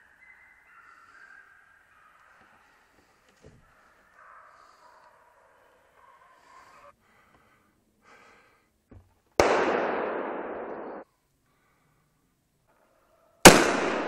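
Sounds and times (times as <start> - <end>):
rifle shots echoing: 9.4 - 11.0, 13.4 - 14.0.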